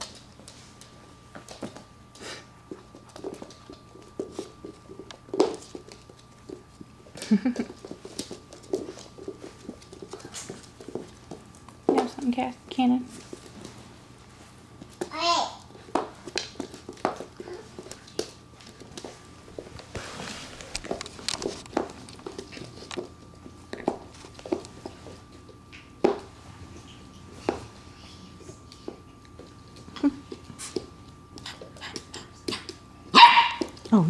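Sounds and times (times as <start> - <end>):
paws clicking on wooden floor: 2.6 - 12.5, 15.8 - 20.0, 20.6 - 26.2, 28.6 - 34.0
puppies chewing rubber toy: 28.6 - 32.8.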